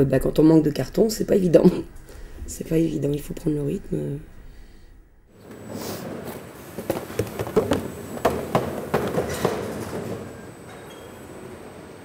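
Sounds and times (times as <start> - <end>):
irregular knocks and clacks: 6.2 - 10.8.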